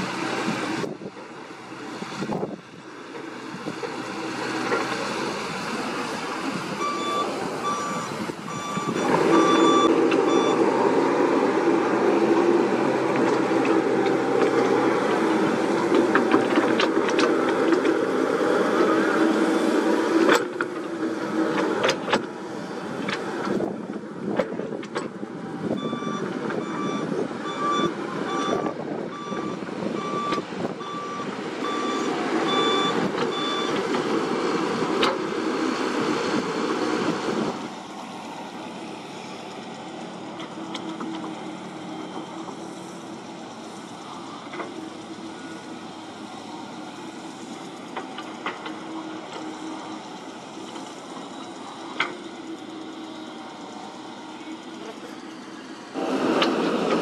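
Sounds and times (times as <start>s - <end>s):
excavator diesel engine under load: 0.0s - 57.0s
travel alarm beeping: 6.8s - 10.6s, 25.8s - 33.8s.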